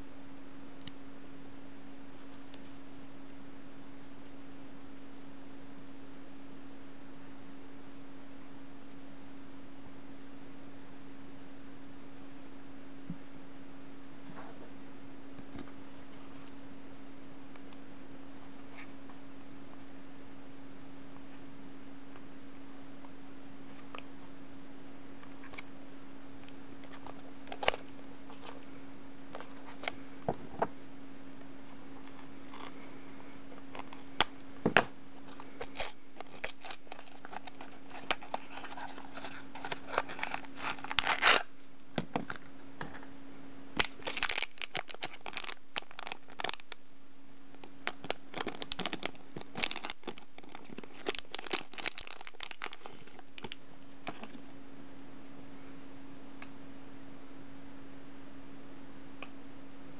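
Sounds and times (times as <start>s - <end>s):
steady low hum: 0.0s - 59.9s
cardboard packaging torn and crinkled: 35.3s - 41.5s, 43.8s - 46.8s, 47.6s - 54.4s.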